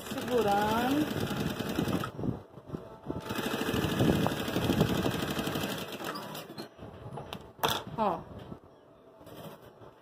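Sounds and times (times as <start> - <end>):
sewing machine stitching: 0.0 - 2.1, 3.2 - 6.5.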